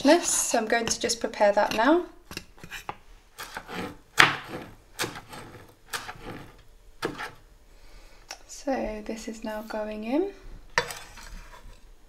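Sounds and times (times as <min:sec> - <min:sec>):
knife chopping on wooden board: 0:03.4 - 0:07.4.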